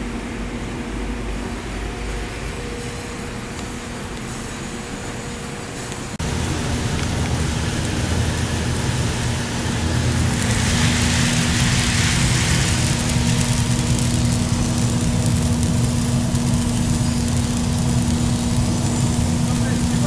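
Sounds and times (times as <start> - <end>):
motor and fan hum: 0.0 - 20.0
coffee beans rattling: 6.2 - 20.0.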